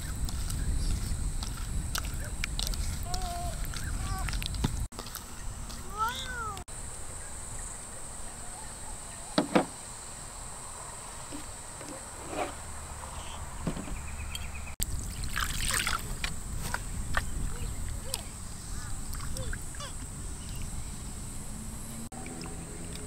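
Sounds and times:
low outdoor background: 0:00.0 - 0:23.0
sharp knocks: 0:09.4 - 0:09.8
water splashing onto fish: 0:15.0 - 0:16.2.

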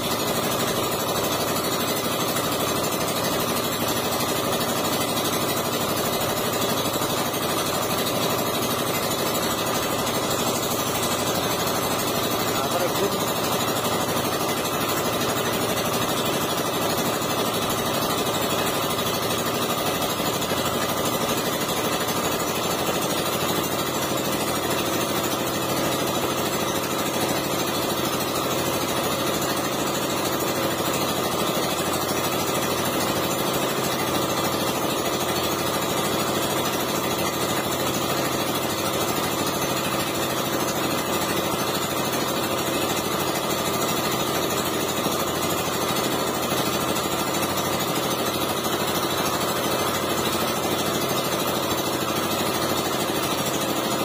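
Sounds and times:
engine running steadily: 0:00.0 - 0:54.0.

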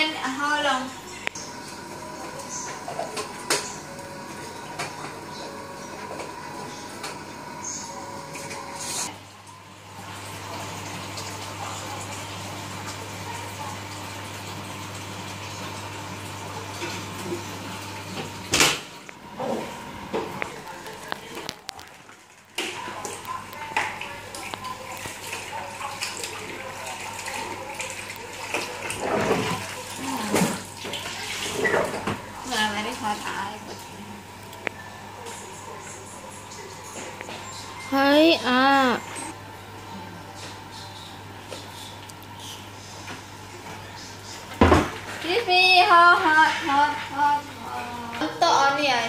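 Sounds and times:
running water: 0:00.0 - 0:49.0.

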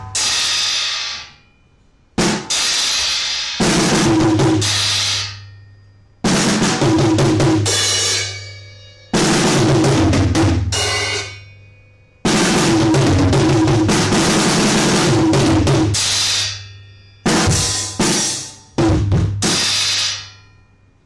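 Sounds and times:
cymbal ringing: 0:00.0 - 0:21.0
drum kit playing: 0:02.2 - 0:05.3, 0:06.2 - 0:11.4, 0:12.2 - 0:16.6, 0:17.2 - 0:20.3.

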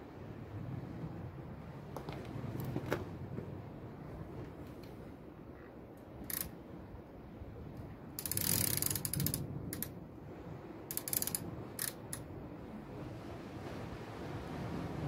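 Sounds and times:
fishing reel ratcheting clicks: 0:06.2 - 0:06.5, 0:08.2 - 0:09.9, 0:10.9 - 0:12.2.

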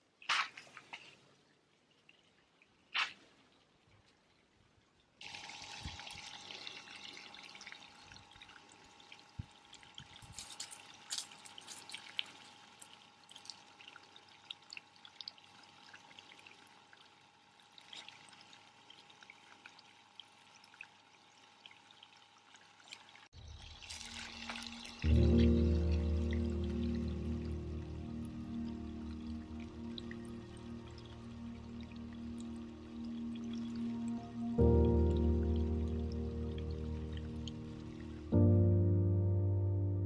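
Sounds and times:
hose water splashing onto soil: 0:00.0 - 0:01.2, 0:02.9 - 0:03.4, 0:05.2 - 0:16.9, 0:17.6 - 0:30.0.

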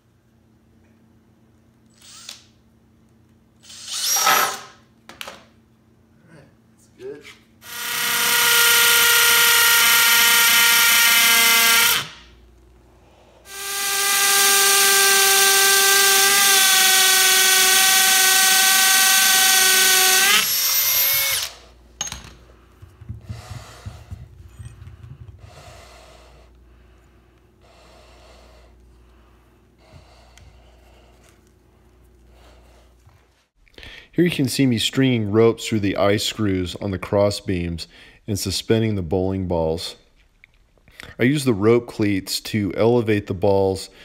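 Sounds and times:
cordless drill whining: 0:03.6 - 0:04.6, 0:07.6 - 0:12.2, 0:13.5 - 0:21.6.

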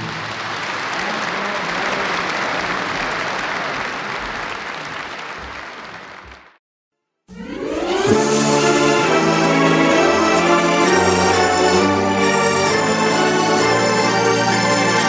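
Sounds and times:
audience applause: 0:00.0 - 0:06.6
music: 0:07.0 - 0:15.0.

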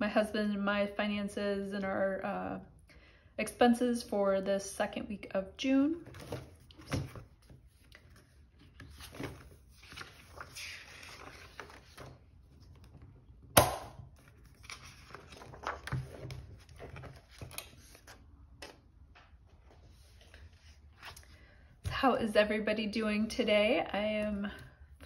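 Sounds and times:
paper pages rustling: 0:06.0 - 0:13.2, 0:14.1 - 0:18.8, 0:19.6 - 0:21.4.

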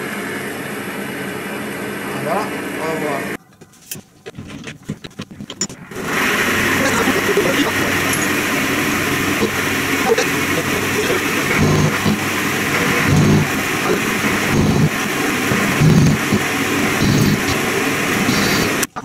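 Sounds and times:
metal lathe running: 0:05.9 - 0:18.9.

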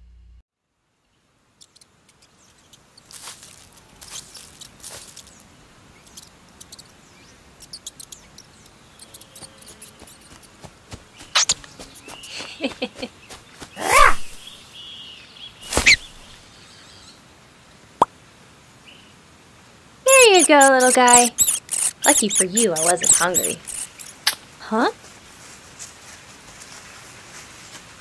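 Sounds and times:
faint chirping: 0:01.0 - 0:17.1, 0:20.1 - 0:24.4
light ticks and rustles: 0:01.6 - 0:07.0, 0:07.6 - 0:13.7, 0:20.1 - 0:28.0.

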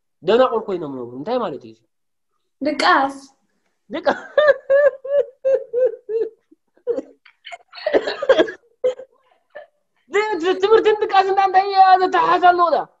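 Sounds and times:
person laughing: 0:04.0 - 0:09.0.

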